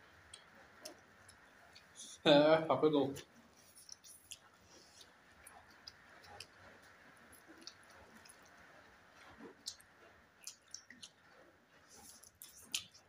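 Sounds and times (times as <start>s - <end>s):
noodle slurping and chewing: 3.4s - 13.0s.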